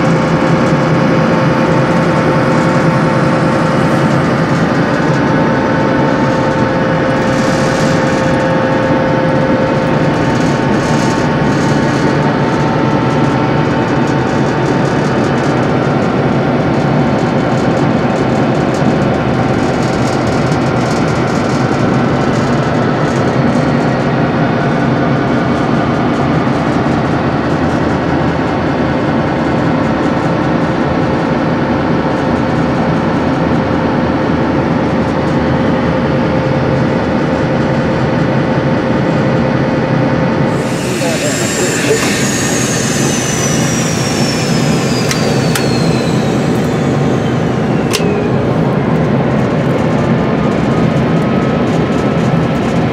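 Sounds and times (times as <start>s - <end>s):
whining tones: 0.0s - 17.5s, 40.4s - 52.0s
locomotive engine running: 0.0s - 27.2s, 40.2s - 52.9s.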